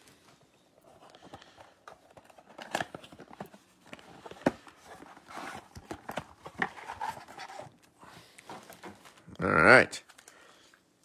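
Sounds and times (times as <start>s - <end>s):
cardboard rustling and tearing: 2.1s - 7.9s.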